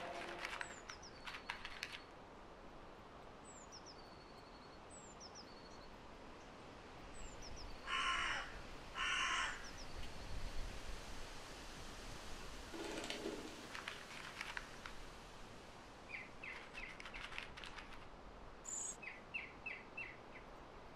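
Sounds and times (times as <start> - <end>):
crow cawing: 7.9 - 9.7.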